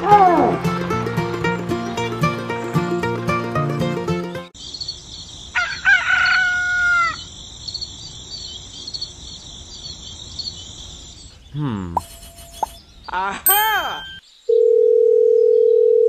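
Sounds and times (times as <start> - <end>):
music: 0.0 - 4.5
small birds chirping: 4.6 - 14.5
rooster crowing: 5.6 - 7.3.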